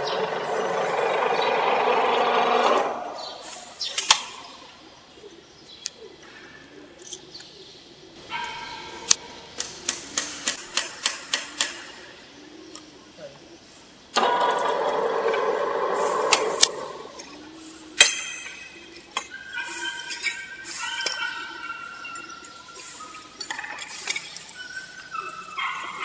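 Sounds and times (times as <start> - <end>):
machine motor and gearbox running: 0.0 - 3.1
sharp metal clicks: 9.1 - 11.8, 16.3 - 17.4.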